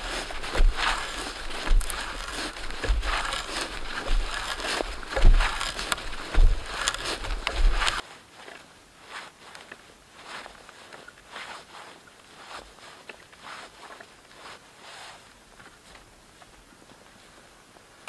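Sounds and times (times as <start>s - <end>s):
hand auger crunching into log: 0.0s - 8.0s
low knocks: 0.0s - 8.0s
faint rustling: 0.0s - 17.9s.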